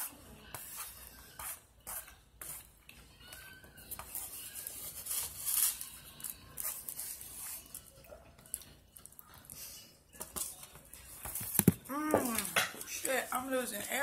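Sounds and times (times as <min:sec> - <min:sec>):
chewing: 0:05.9 - 0:10.2.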